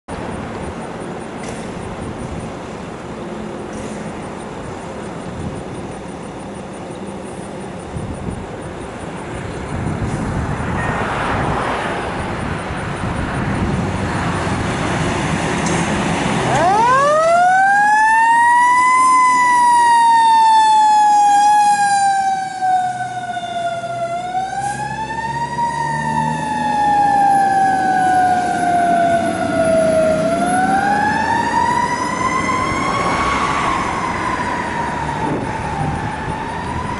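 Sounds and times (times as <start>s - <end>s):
truck engine and road rumble: 0.1s - 36.9s
fire engine siren wailing: 16.0s - 36.9s.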